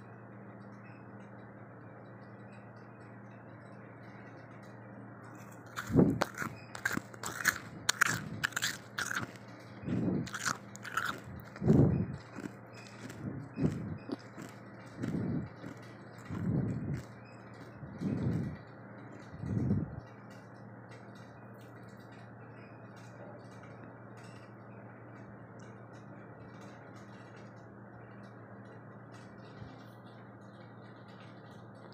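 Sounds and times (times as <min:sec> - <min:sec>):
steady low hum: 0:00.0 - 0:31.9
person crunching frost: 0:05.5 - 0:09.4, 0:10.1 - 0:17.1.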